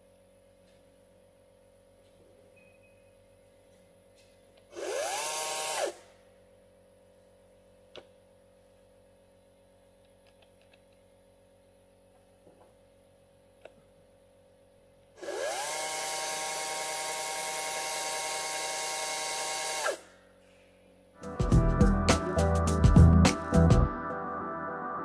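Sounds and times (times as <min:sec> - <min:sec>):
electric chainsaw whine: 0:04.7 - 0:06.2, 0:15.2 - 0:20.1.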